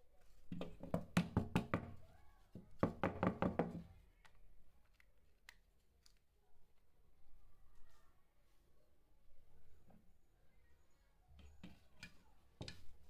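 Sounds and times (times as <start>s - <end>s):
hard plastic knocking: 2.8s - 3.8s.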